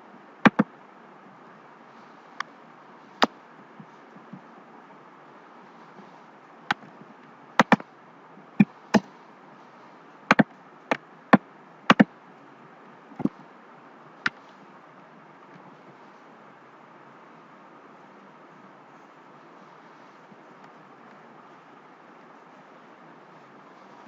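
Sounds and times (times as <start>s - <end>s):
keyboard and mouse clicks: 0.5s - 0.7s, 7.6s - 7.8s.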